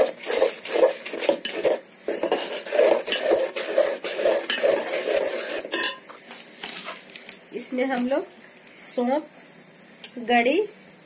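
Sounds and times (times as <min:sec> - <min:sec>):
metal spatula scraping pot: 0:00.0 - 0:06.1.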